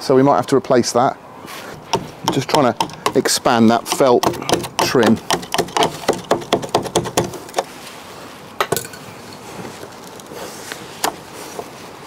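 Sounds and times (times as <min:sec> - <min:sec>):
glass and metal door parts clinking: 0:08.6 - 0:09.0.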